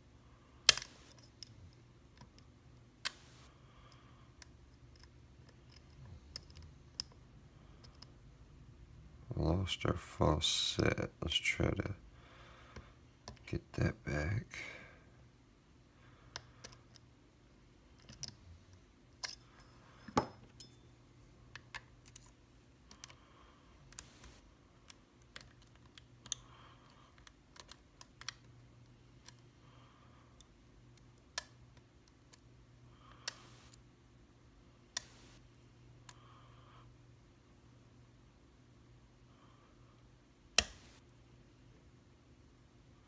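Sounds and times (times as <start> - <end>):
faint low hum: 0.0 - 43.0
lock pick clicking and scraping: 18.0 - 18.4.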